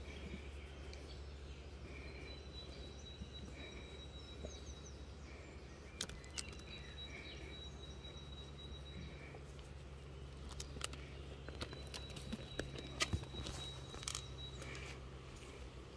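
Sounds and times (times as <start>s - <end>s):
small bird chirps: 0.0s - 15.0s
faint repeating chirp: 0.0s - 15.2s
sharp clicks: 5.9s - 6.8s.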